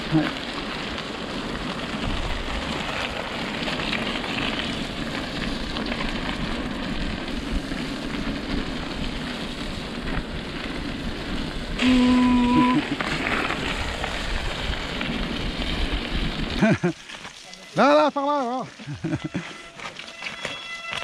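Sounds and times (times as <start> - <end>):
bike tyres rolling through mud: 0.0 - 21.0
wind: 0.0 - 21.0.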